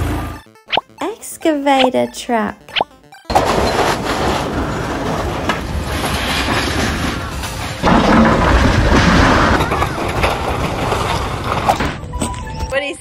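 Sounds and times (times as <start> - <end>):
excavator engine running: 0.0 - 0.4
sheet metal and rubble crashing: 3.3 - 12.7.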